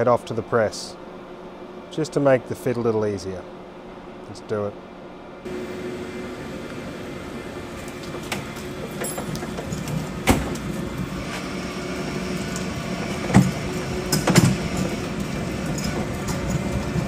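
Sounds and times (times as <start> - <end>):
trolley wheels rumbling on concrete: 5.5 - 17.0
metal clunks and rattles: 12.4 - 17.0.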